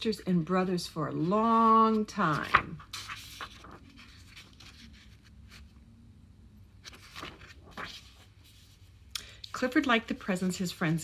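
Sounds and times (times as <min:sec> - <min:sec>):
low room hum: 0:00.0 - 0:11.0
book rustling and scraping: 0:01.1 - 0:05.8, 0:06.8 - 0:09.1.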